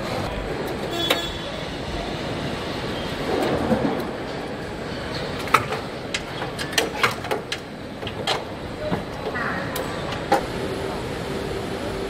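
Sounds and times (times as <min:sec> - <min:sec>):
sharp clicks and knocks: 0:05.4 - 0:10.5.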